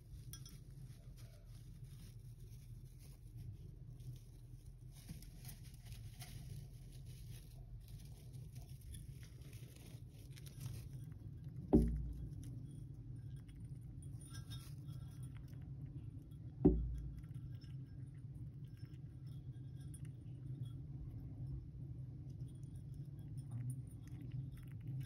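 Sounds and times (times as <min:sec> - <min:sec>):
hamster rustling in bedding: 0:00.0 - 0:11.2
dull thump: 0:11.7 - 0:12.4, 0:16.6 - 0:17.2.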